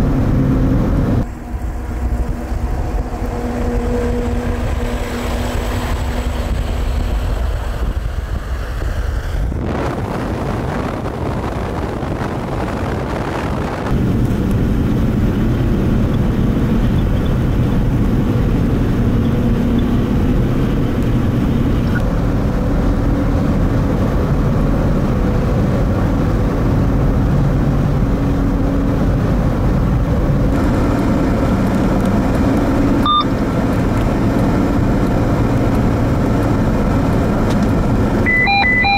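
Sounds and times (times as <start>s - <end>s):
snow plow truck passing: 0.0s - 38.9s
vehicle engine and tyre noise: 0.0s - 38.9s
short beep: 33.0s - 33.3s, 38.3s - 38.9s.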